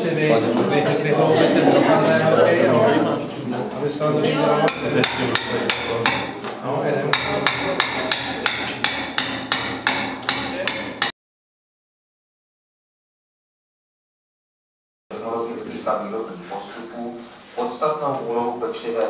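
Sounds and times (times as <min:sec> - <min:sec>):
hammer striking: 0:04.7 - 0:06.4, 0:07.1 - 0:11.1.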